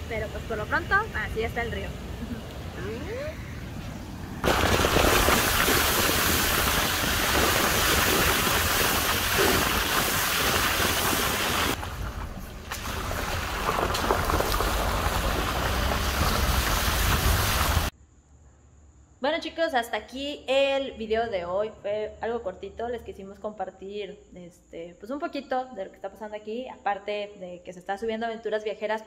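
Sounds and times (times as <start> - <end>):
tyres hissing through water: 4.4 - 11.8, 12.7 - 17.9.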